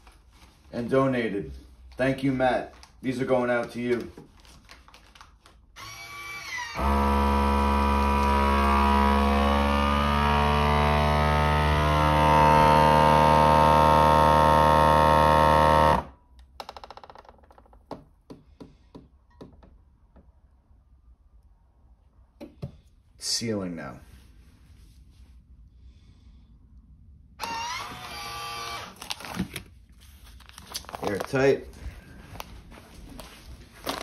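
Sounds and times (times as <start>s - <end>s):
vacuum sealer pump humming: 5.8s - 16.2s, 27.4s - 29.0s.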